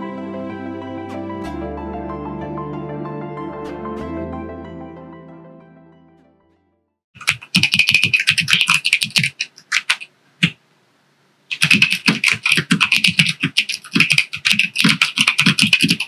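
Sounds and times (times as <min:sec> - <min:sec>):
mechanical keyboard typing: 0:07.2 - 0:10.6, 0:11.5 - 0:16.0.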